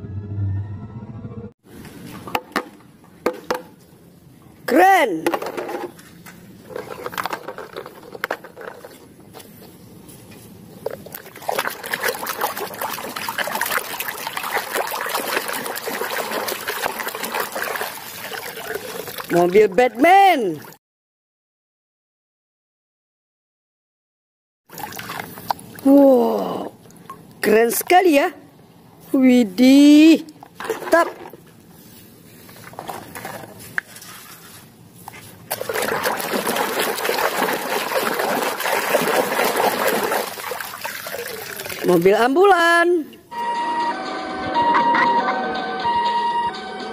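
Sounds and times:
water sloshing in a basin: 0:10.8 - 0:20.8, 0:24.7 - 0:28.0, 0:30.3 - 0:42.4
hand scrubbing toy underwater: 0:10.9 - 0:19.9, 0:35.2 - 0:42.0.

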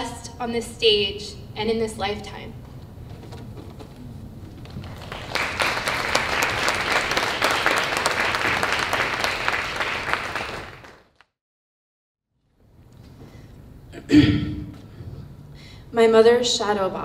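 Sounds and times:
audience applauding: 0:04.4 - 0:11.2.

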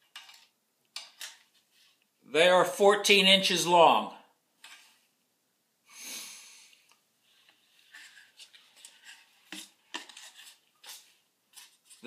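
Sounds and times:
wooden pieces clicking and knocking: 0:00.0 - 0:01.6.

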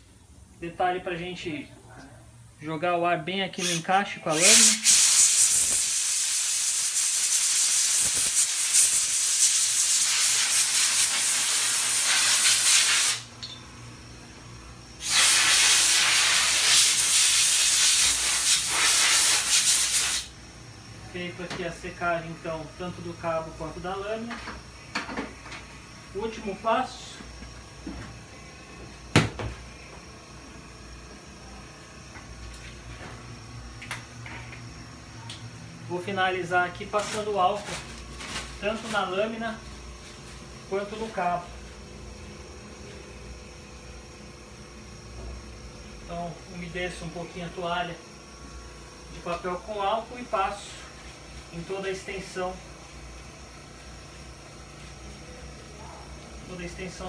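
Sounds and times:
compressed air blow gun hissing: 0:03.6 - 0:13.3, 0:15.0 - 0:20.3.

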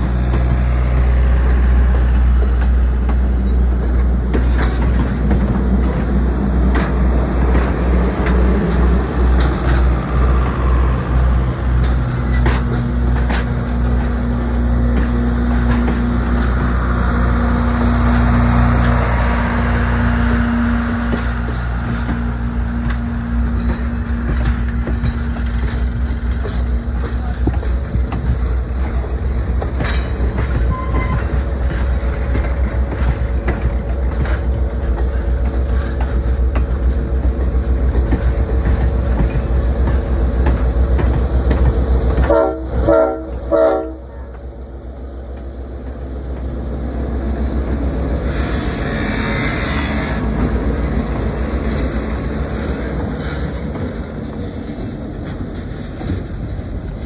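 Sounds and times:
train rumbling: 0:00.0 - 0:57.0
locomotive horn blasts: 0:42.2 - 0:44.2.

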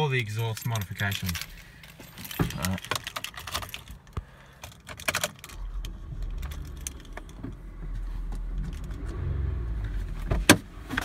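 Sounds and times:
keys rattling in ignition: 0:00.0 - 0:10.1
car engine idling: 0:03.7 - 0:11.0.

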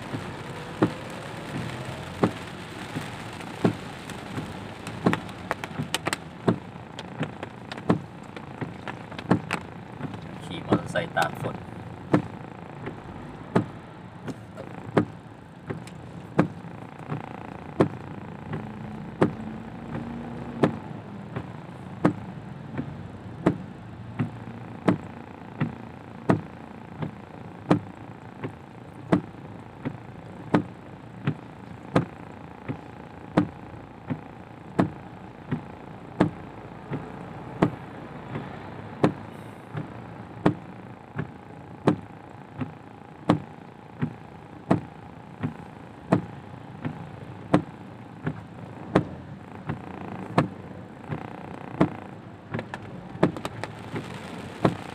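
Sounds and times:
rain hiss: 0:00.0 - 0:13.7, 0:52.8 - 0:54.9
road noise: 0:00.0 - 0:54.9
windscreen wipers knocking: 0:00.0 - 0:54.9.

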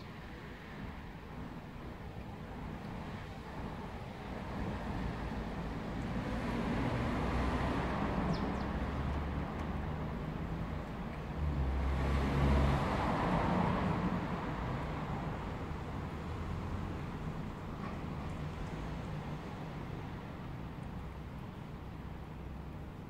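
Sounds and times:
road traffic engine rumble: 0:00.0 - 0:23.0.

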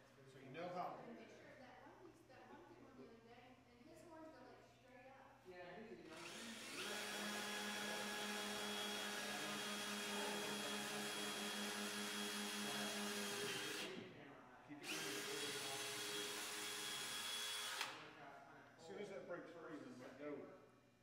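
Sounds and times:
power drill boring through wood: 0:06.1 - 0:14.0, 0:14.8 - 0:18.1.

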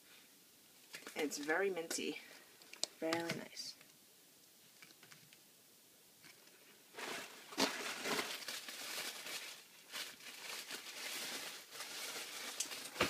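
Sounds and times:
packaging rustling and crinkling: 0:06.9 - 0:13.0.

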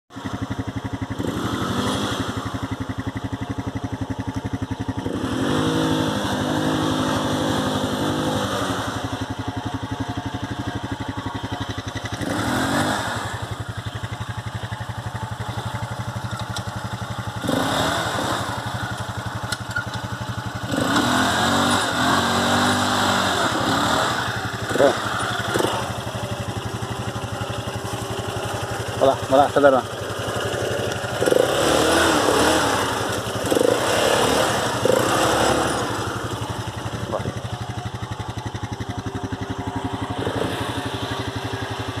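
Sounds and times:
atv engine idling and revving: 0:00.1 - 0:42.0.

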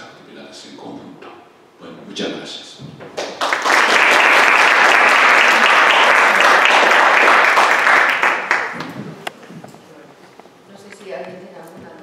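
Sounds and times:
audience applauding: 0:03.2 - 0:09.0.

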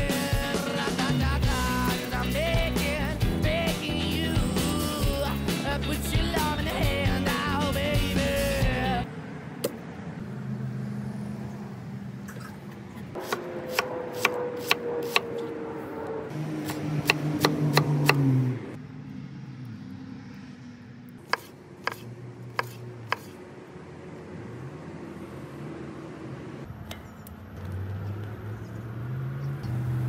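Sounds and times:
knife chopping on wooden board: 0:13.2 - 0:15.3, 0:16.6 - 0:18.2, 0:21.3 - 0:23.4.

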